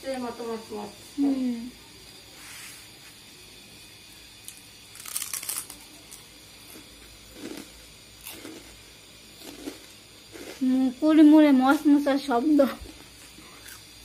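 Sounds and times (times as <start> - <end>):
crunchy snack being chewed: 4.4 - 8.8, 9.4 - 10.6, 12.8 - 14.0.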